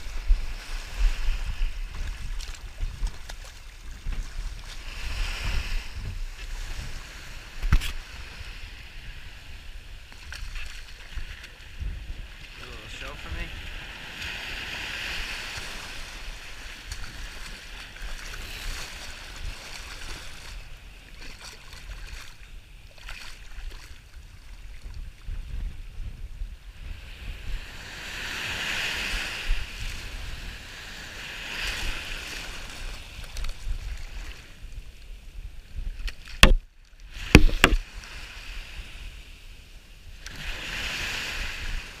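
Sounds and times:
surf washing over sand: 0.0 - 24.1, 25.0 - 42.0
wind rumbling on microphone: 0.0 - 42.0
sharp knocks: 36.4 - 36.6, 37.3 - 37.8.

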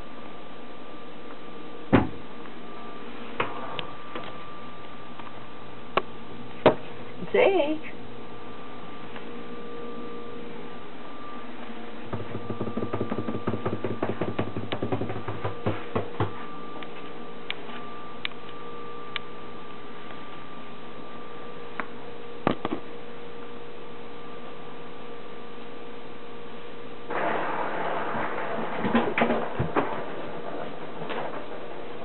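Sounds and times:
steady hum: 0.0 - 32.0
sharp knocks: 12.1 - 16.4.

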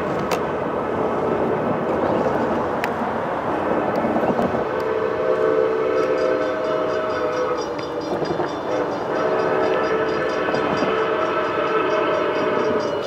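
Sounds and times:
steam locomotive whistle blasts: 4.6 - 13.0.

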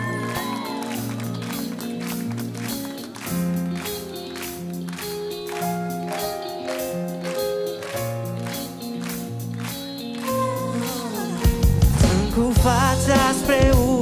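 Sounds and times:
electric guitar: 0.0 - 14.0
steady drum beat: 11.4 - 14.0
bass notes: 11.5 - 14.0.

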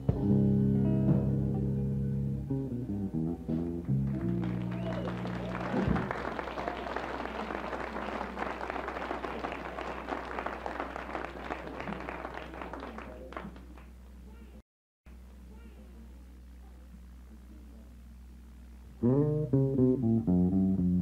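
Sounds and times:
steady low hum: 0.1 - 21.0
audience applauding: 3.8 - 13.9.

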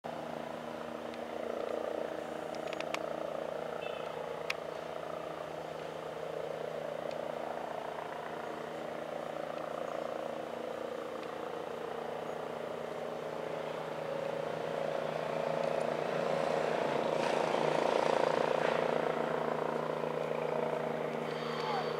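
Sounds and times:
distant helicopter hum: 0.1 - 21.9
faint clicks: 2.4 - 3.1.

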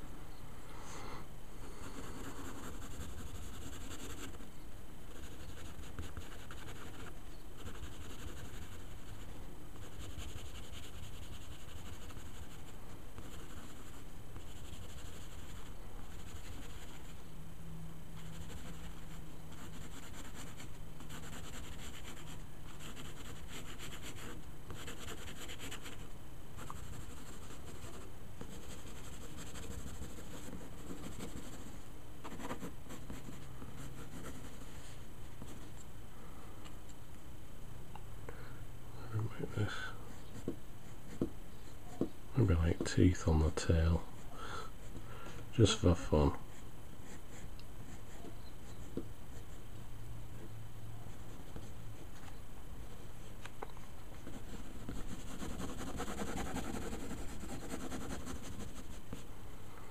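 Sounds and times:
pencil scratching on paper: 1.8 - 4.4, 5.1 - 17.2, 18.2 - 26.0, 26.6 - 34.8, 40.1 - 41.3, 46.5 - 49.6, 54.2 - 59.2.

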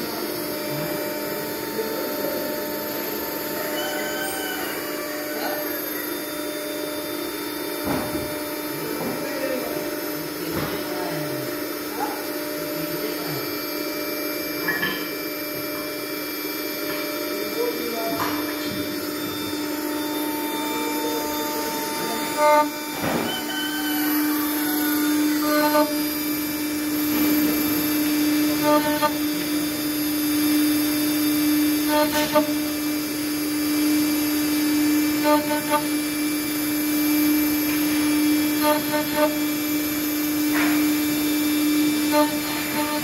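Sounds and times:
milling machine spindle hum: 0.0 - 43.0
short buzzing blips: 19.0 - 29.7, 31.8 - 32.9, 34.6 - 36.1, 37.9 - 39.6, 41.9 - 43.0.

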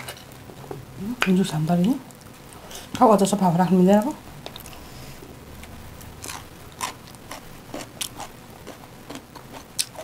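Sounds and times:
chewing crunches and mouth noises: 4.4 - 4.8, 6.0 - 10.0.

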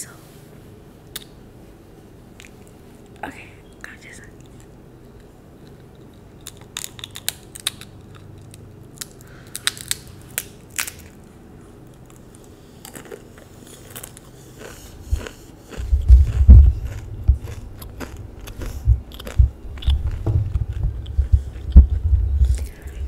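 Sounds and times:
crunchy snack chewing: 4.4 - 23.0.

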